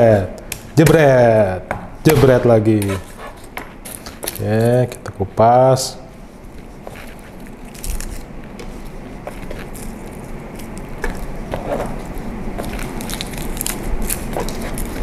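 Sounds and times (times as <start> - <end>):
garlic skins crackling: 0.0 - 5.6, 6.4 - 15.0.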